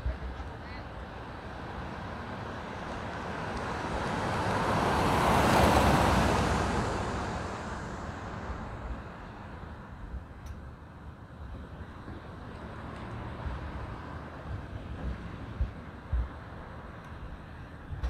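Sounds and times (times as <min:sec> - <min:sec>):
car driving past: 0:02.5 - 0:09.2.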